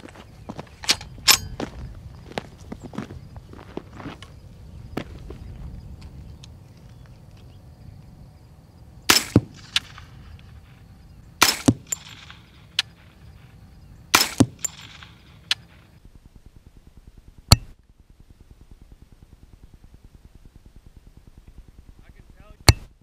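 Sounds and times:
suppressed gunshots: 9.0 - 10.8, 11.4 - 16.0
bullet striking: 9.1 - 10.8, 11.4 - 13.5, 14.1 - 15.9, 17.5 - 17.7, 22.6 - 22.9.

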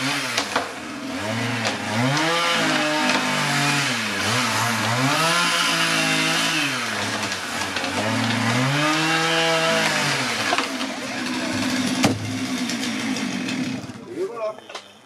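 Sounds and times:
chainsaw cutting wood: 0.0 - 14.2
heavy thud of log hitting ground: 12.0 - 12.3.

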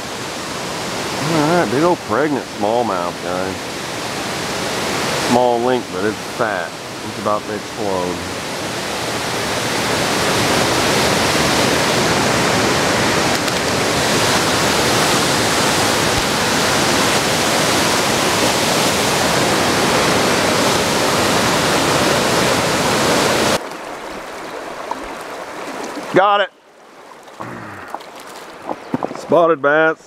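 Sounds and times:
loud steady rushing noise: 9.1 - 23.6.

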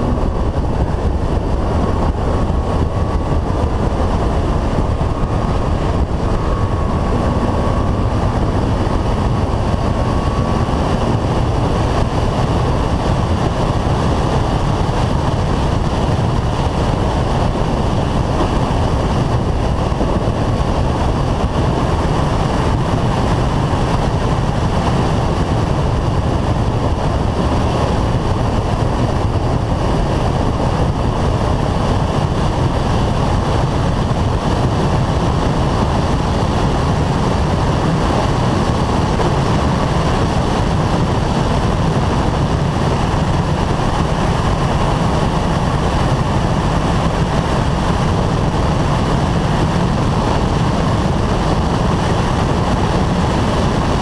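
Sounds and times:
muffled engine and tyre noise: 0.0 - 54.0
wind rush buffeting camera: 0.0 - 54.0.

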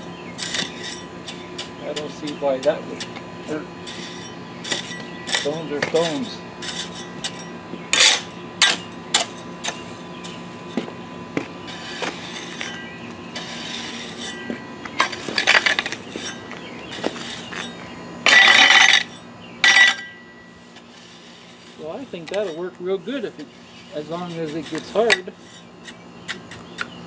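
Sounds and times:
metal hoe scraping blacktop: 0.0 - 27.0
blade clinking against stones: 3.9 - 10.4, 14.1 - 20.5.

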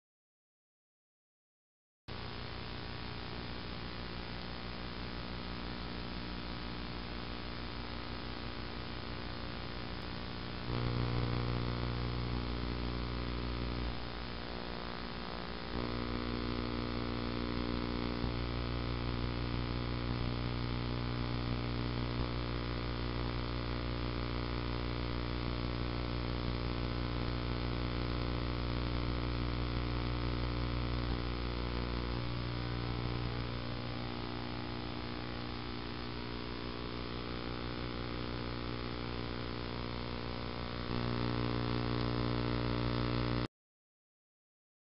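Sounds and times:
electrical mains hum: 2.1 - 43.5.

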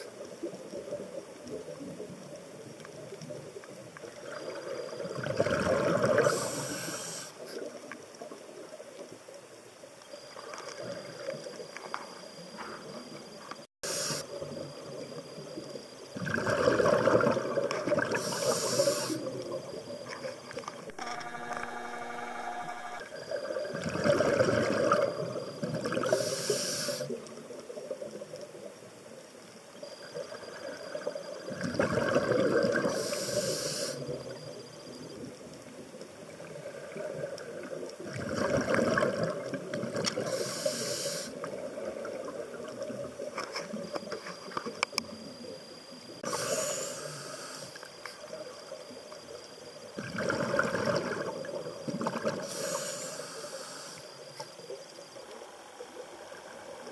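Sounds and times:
bubbling exhale: 4.4 - 7.7, 16.2 - 19.4, 46.2 - 47.8, 52.0 - 54.1
scuba regulator breathing: 6.2 - 7.5, 13.8 - 14.4, 18.1 - 19.3, 26.0 - 27.2, 32.9 - 34.1, 40.2 - 41.4, 46.2 - 47.8, 52.4 - 54.2
sharp hissing inhale: 6.2 - 7.5, 13.8 - 14.4, 18.1 - 19.3, 26.0 - 27.2, 32.9 - 34.1, 40.2 - 41.4, 46.2 - 47.9, 52.4 - 54.2.

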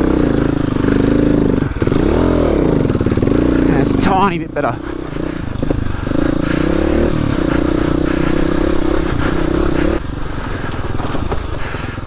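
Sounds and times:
motorcycle engine under throttle: 0.0 - 12.0
bike clattering over rough ground: 7.0 - 12.0.

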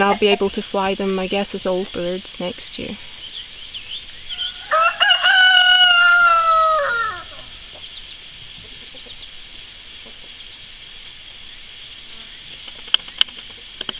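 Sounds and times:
rooster crowing: 4.3 - 7.5.

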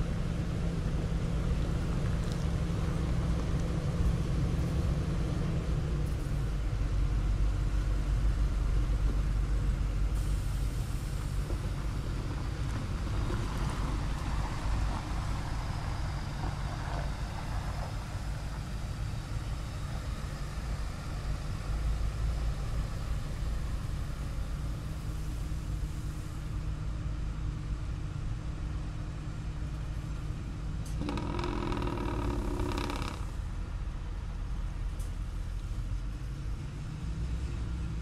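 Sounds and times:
truck engine rumbling: 0.0 - 38.0
hiss: 10.1 - 11.8.

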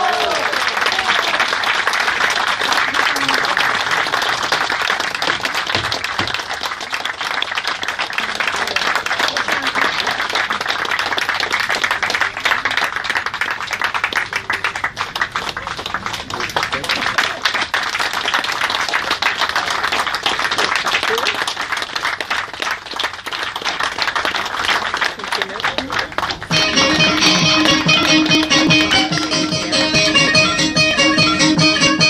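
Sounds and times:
crowd clapping: 0.0 - 31.9.

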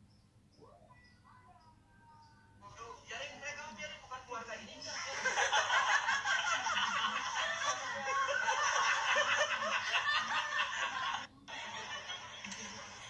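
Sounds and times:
laughter: 4.9 - 13.0.

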